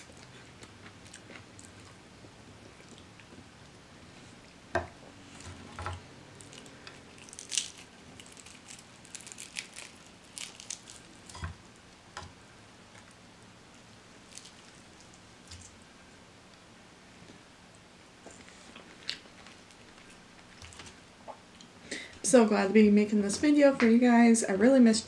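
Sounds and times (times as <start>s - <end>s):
fried chicken crackling: 5.2s - 12.2s, 14.2s - 15.8s.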